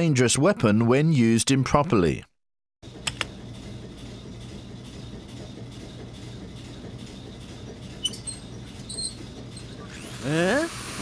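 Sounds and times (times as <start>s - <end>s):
low background hum: 2.8s - 11.0s.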